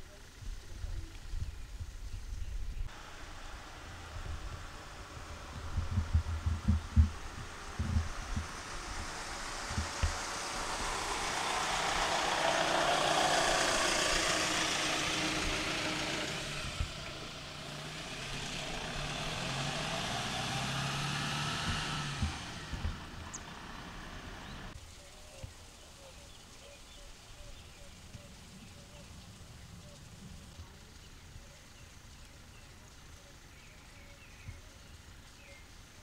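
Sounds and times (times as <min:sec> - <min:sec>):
motor vehicle driving past: 0:02.9 - 0:24.8.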